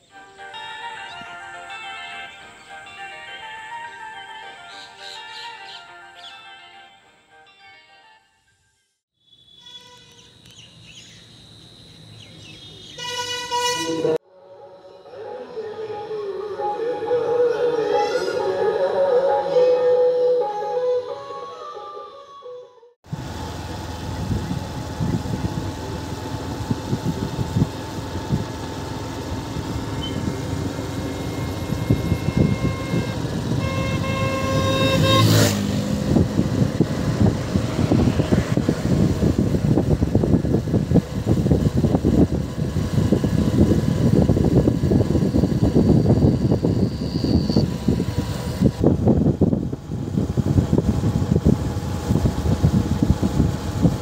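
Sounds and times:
vehicle horn blasts: 9.6 - 10.3, 12.8 - 14.2, 30.0 - 35.8
road and wind noise: 9.8 - 14.2, 23.0 - 54.0
motorcycle engine running: 23.1 - 54.0.

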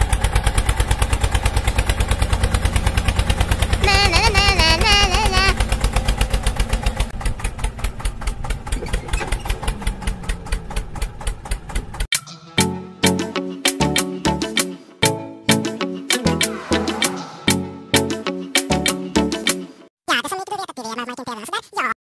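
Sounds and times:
tractor engine chugging: 0.0 - 12.1
warbling pitched tone: 16.2 - 18.3.

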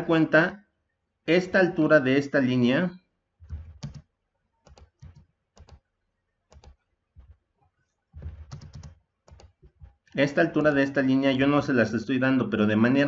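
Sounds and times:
keyboard keystrokes: 3.4 - 4.0, 4.6 - 5.8, 6.5 - 6.8, 8.2 - 9.6.

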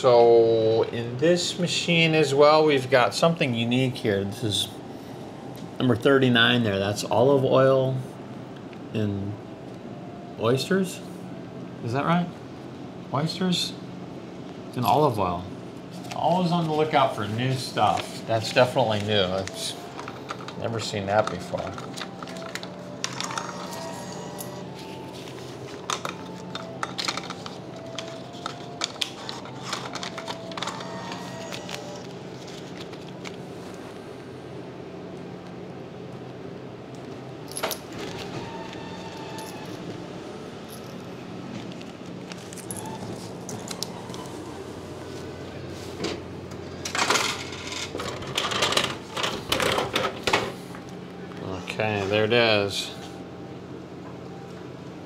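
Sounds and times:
machine hum: 0.0 - 55.0
bill acceptor clicking and rattling: 17.8 - 24.7, 25.7 - 33.4, 46.8 - 50.5.

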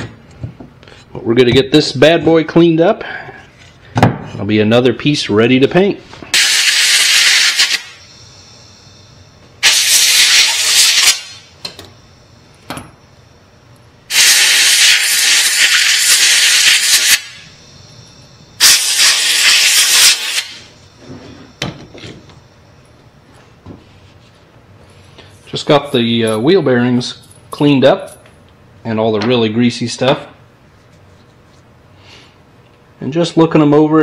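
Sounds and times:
air blow gun hissing: 6.3 - 8.0, 9.6 - 11.5, 14.1 - 17.5, 18.6 - 20.7.

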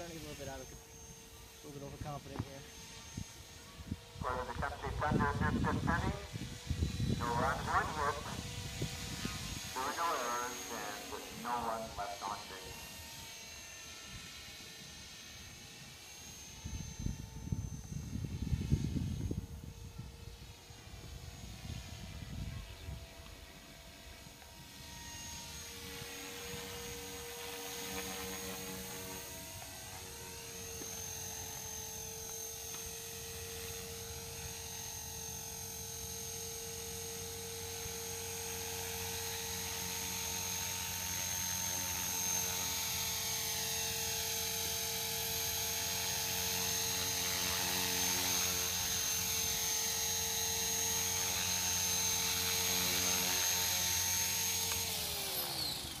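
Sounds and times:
model helicopter motor whine: 0.0 - 56.0
rotor buzz: 0.0 - 56.0.

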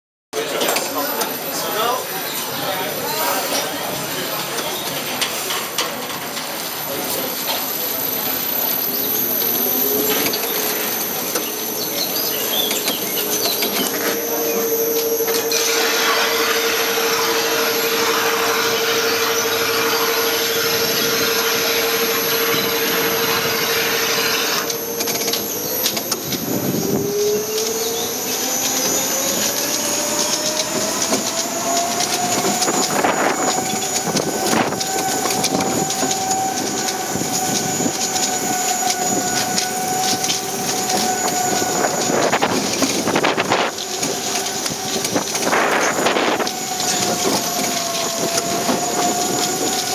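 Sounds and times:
roller coaster wheels rumbling: 0.4 - 49.9
roller coaster whine: 0.4 - 49.9.

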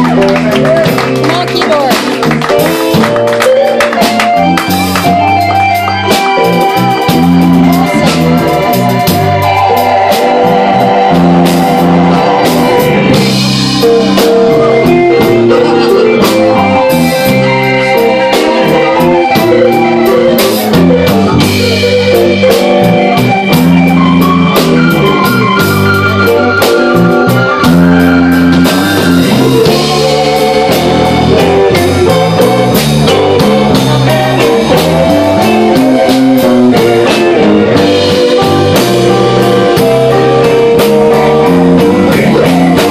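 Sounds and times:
drum kit: 0.0 - 42.9
electric guitar: 0.0 - 42.9
live blues band playing: 0.0 - 42.9.

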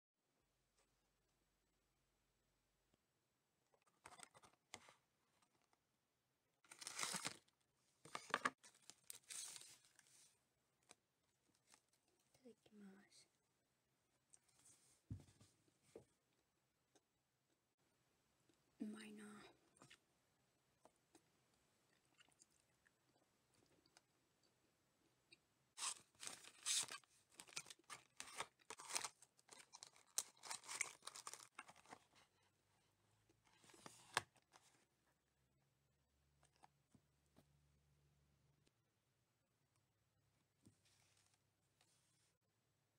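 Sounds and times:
paper tearing and crinkling: 6.7 - 7.4, 25.8 - 31.9.

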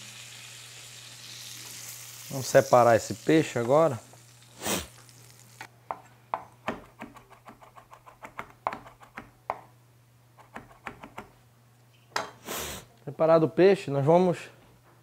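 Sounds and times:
knife chopping on wooden board: 5.9 - 9.7.

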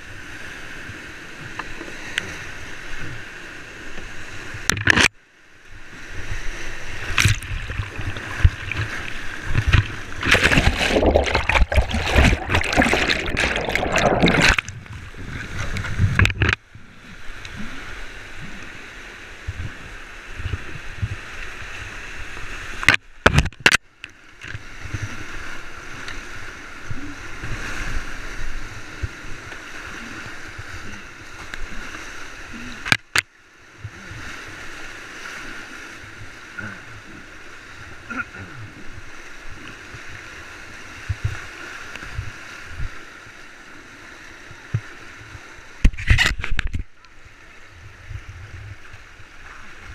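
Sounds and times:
splashing and microphone buffeting: 6.0 - 23.8, 24.4 - 49.9
whitewater rapids rushing: 6.6 - 14.6.

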